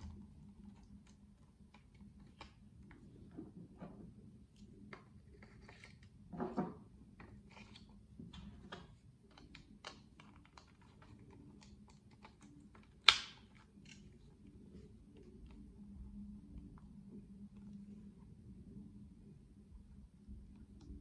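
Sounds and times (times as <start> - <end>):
small plastic clicks and handling: 0.1 - 3.2, 7.2 - 15.6.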